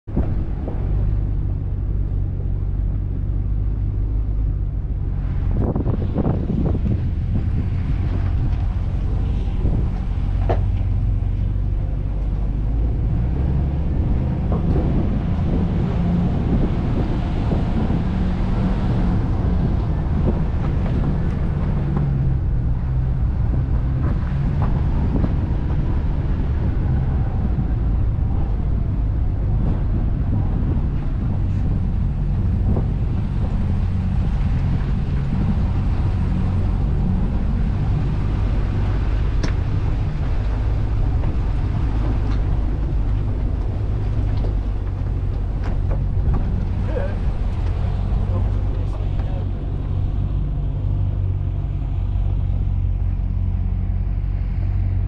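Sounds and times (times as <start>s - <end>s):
vehicle engine running: 0.0s - 55.0s
tyre noise on rough dirt: 0.1s - 51.3s
knocks from rough ground: 9.6s - 11.0s.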